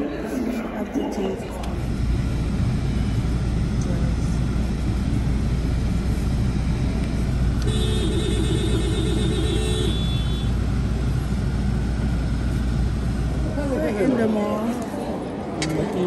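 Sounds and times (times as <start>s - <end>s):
car road and engine rumble: 1.6s - 16.0s
vehicle horn: 7.6s - 10.6s.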